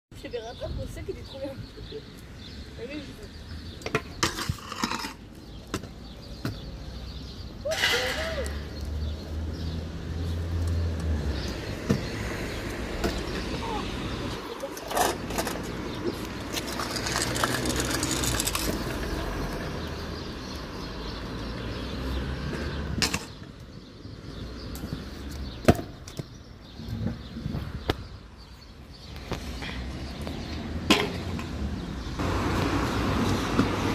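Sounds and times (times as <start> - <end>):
scooter wheels rolling on pavement: 0.2 - 33.9
scooter clacking on ground: 14.5 - 19.6.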